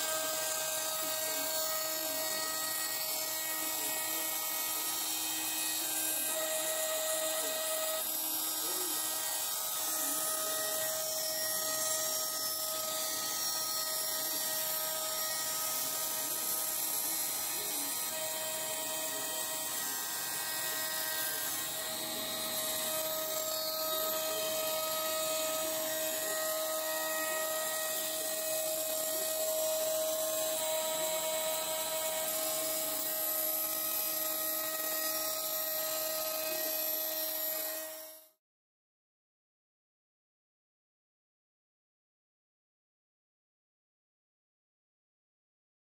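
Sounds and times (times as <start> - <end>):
router spindle high whine: 0.0 - 38.4.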